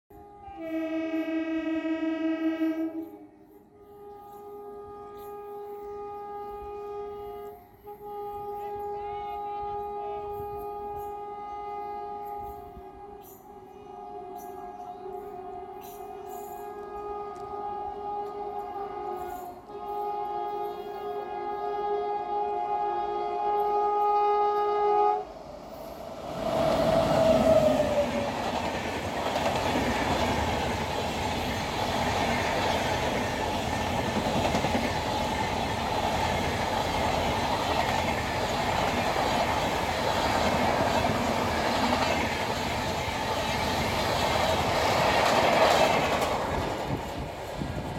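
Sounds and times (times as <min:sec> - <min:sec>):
train horn: 0:00.1 - 0:42.8
train rushing past: 0:24.4 - 0:47.9.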